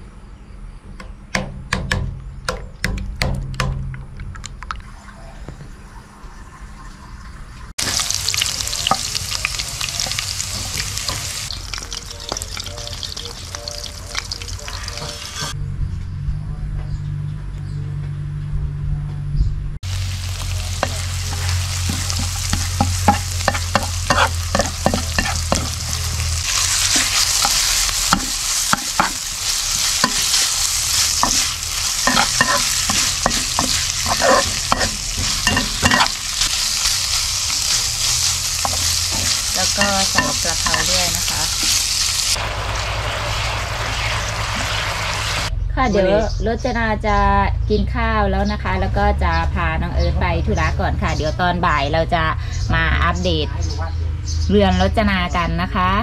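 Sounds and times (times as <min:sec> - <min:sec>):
hot oil sizzling in a wok: 0:07.8 - 0:15.6, 0:19.8 - 0:45.5
metal spatula scraping a pan: 0:20.8 - 0:41.8.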